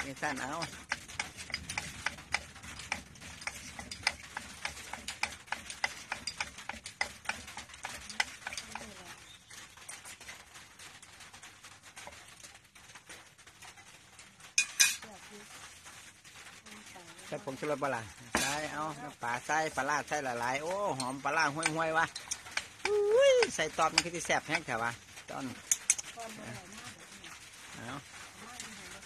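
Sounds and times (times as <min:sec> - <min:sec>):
wooden pestle pounding in mortar: 0:00.0 - 0:08.9, 0:19.8 - 0:24.6.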